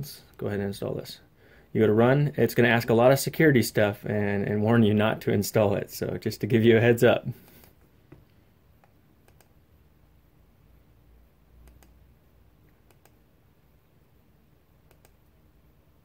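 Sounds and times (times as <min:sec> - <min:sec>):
computer mouse clicks: 0:08.8 - 0:09.6, 0:11.6 - 0:12.0, 0:12.6 - 0:13.2, 0:14.8 - 0:15.3.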